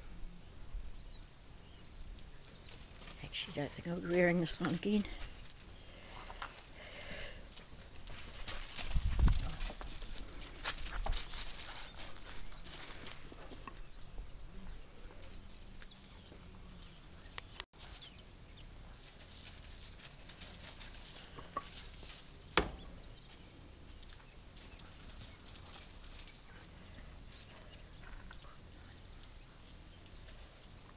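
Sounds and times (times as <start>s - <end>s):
high-pitched hiss: 0.0s - 30.9s
paws crunching on gravel: 7.5s - 14.0s, 18.8s - 23.4s
sharp knock: 22.6s - 23.0s.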